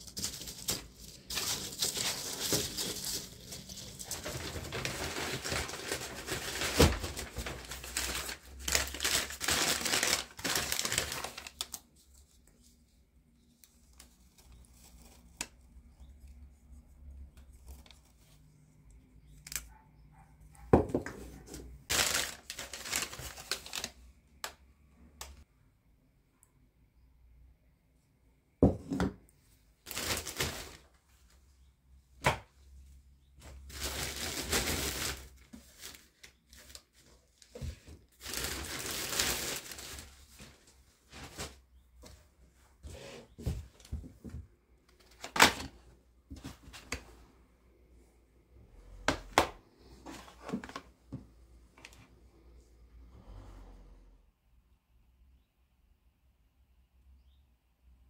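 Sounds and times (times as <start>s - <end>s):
household handling noises: 0.0s - 11.8s, 20.5s - 23.9s, 29.9s - 30.9s, 33.4s - 47.2s.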